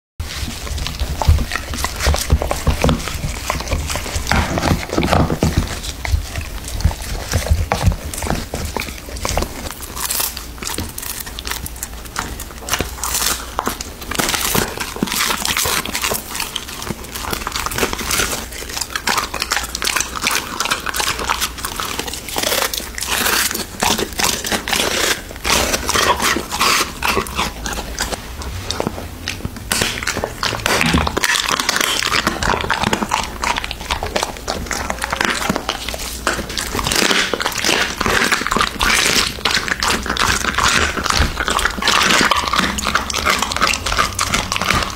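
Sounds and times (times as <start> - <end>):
dog chewing food crunchily: 0.2 - 44.9.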